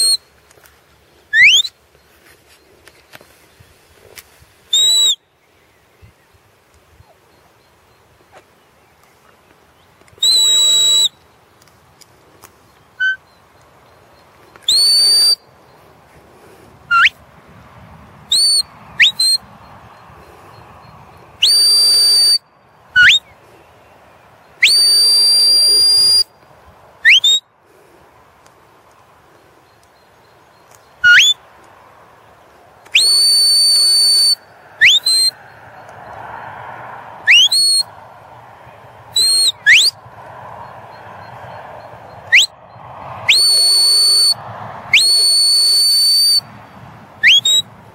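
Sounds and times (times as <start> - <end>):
shepherd's whistle commands: 0.0 - 0.2, 1.3 - 1.7, 4.7 - 5.2, 10.2 - 11.2, 13.0 - 13.2, 14.6 - 15.5, 16.9 - 17.2, 18.3 - 19.5, 21.4 - 22.4, 23.0 - 23.3, 24.6 - 26.3, 27.1 - 27.4, 31.0 - 31.4, 32.9 - 35.4, 37.3 - 37.9, 39.2 - 40.0, 42.3 - 42.5, 43.3 - 44.4, 45.0 - 46.5, 47.2 - 47.7.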